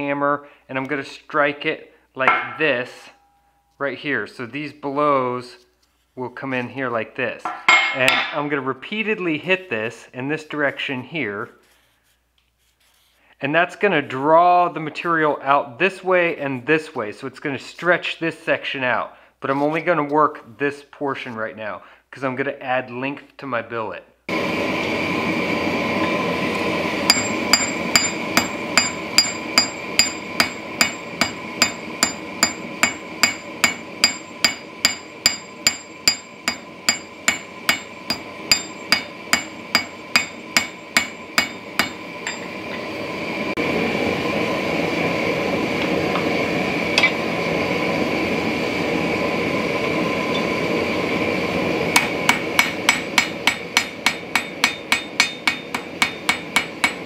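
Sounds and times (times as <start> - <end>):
hammer blows on hot steel: 2.2 - 3.5, 26.0 - 42.9, 51.9 - 57.0.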